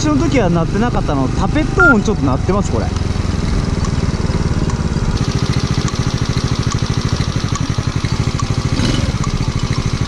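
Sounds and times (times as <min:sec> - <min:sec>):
motorcycle engine idling: 0:02.9 - 0:10.0.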